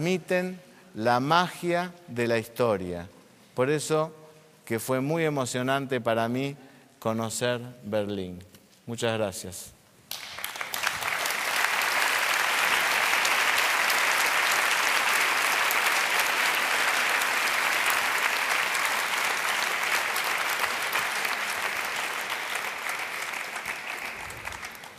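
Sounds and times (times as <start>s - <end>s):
audience applauding: 10.1s - 24.9s.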